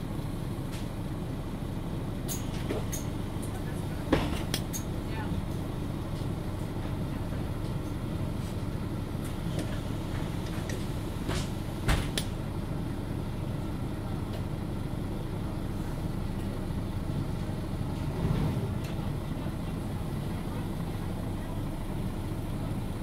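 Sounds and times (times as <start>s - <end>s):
bus engine rumble: 0.0s - 23.0s.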